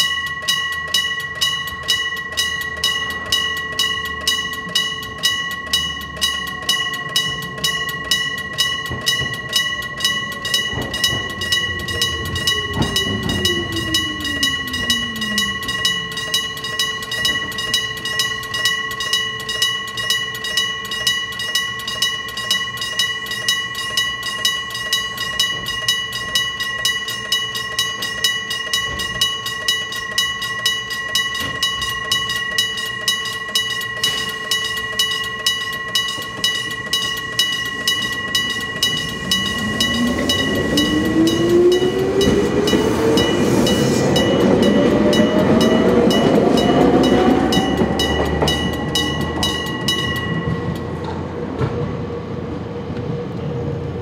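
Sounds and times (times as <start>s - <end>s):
level crossing bell ringing: 0.0s - 51.3s
electric train motor whine: 5.9s - 18.3s, 36.0s - 51.2s.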